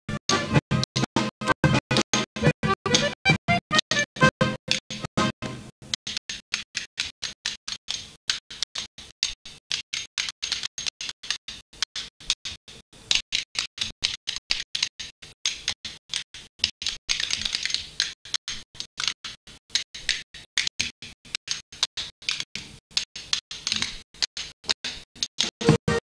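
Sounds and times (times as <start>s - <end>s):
hands clapping: 0.3s - 5.3s.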